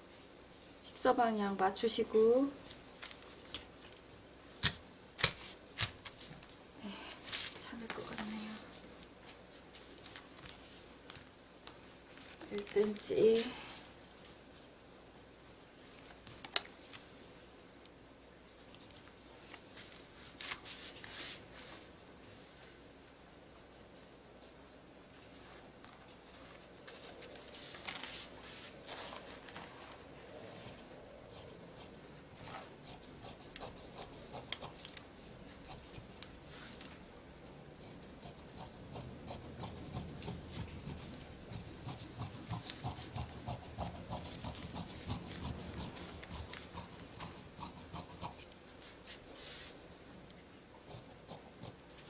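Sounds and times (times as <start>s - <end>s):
marker scraping along ruler: 30.4s - 36.0s, 37.9s - 48.5s.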